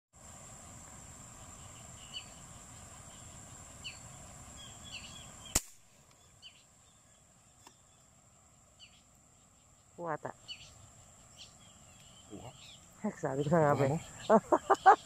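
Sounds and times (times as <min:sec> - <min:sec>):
high insect whine: 0:00.2 - 0:15.0
bird chirps: 0:01.4 - 0:08.2, 0:08.8 - 0:15.0
airgun shot: 0:05.5 - 0:05.9.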